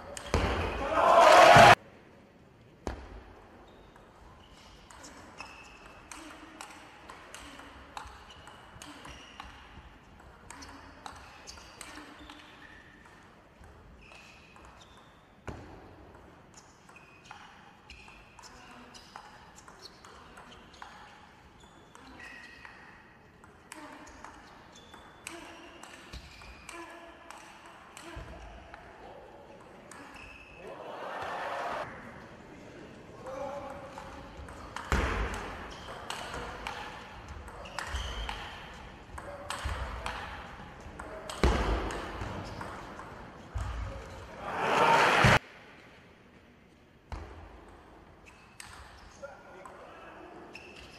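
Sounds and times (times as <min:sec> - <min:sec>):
shoes squeaking on floor: 0:08.2 - 0:09.5, 0:14.0 - 0:15.4, 0:37.6 - 0:38.8, 0:50.4 - 0:50.9.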